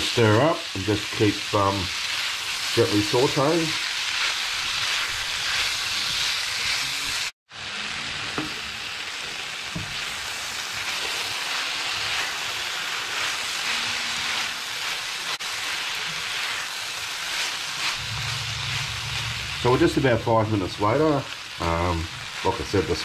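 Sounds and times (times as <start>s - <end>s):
vegetables sizzling in a frying pan: 0.0s - 23.0s
spatula scraping a pan: 10.8s - 19.6s.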